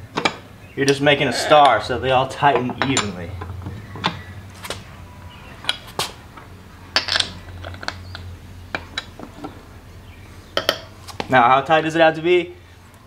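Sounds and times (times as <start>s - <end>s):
tire iron clinking on lug nuts: 1.6s - 11.0s.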